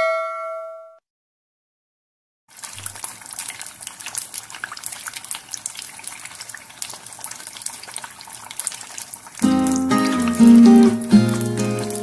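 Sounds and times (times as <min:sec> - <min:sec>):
hot oil sizzling and popping: 0:02.5 - 0:12.0.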